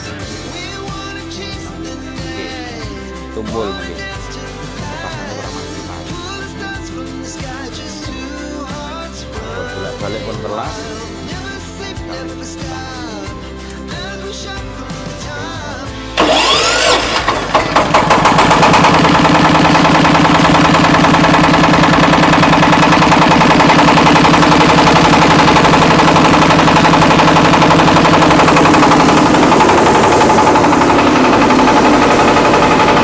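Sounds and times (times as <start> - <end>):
diesel engine running: 0.0 - 33.0
starter motor cranking: 16.2 - 33.0.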